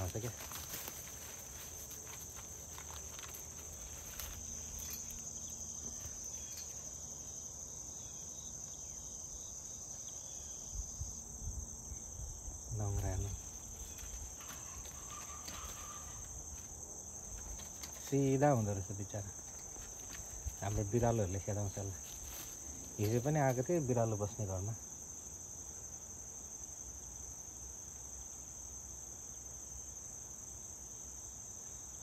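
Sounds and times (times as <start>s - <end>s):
high-pitched insect chirring: 1.9s - 11.2s, 12.7s - 23.5s.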